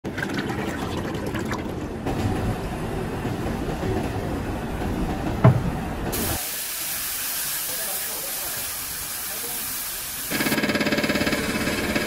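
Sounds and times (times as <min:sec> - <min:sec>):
factory rumble: 0:00.2 - 0:10.3
heavy thump: 0:05.4 - 0:05.8.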